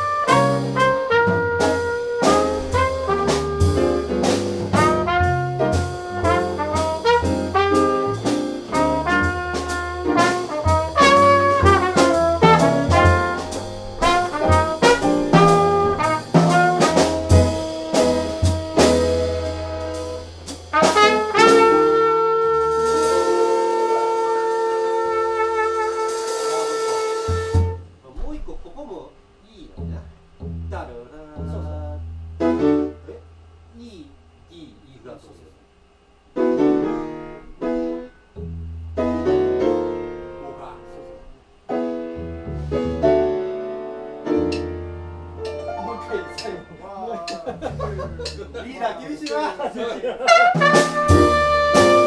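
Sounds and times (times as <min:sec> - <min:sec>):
trumpet: 0:00.0 - 0:28.0, 0:50.2 - 0:52.0
upright bass: 0:00.0 - 0:28.8, 0:29.5 - 0:34.7, 0:36.4 - 0:52.0
drums: 0:00.0 - 0:29.0, 0:44.3 - 0:52.0
piano: 0:00.0 - 0:29.0, 0:30.5 - 0:33.3, 0:36.3 - 0:49.4, 0:50.3 - 0:52.0.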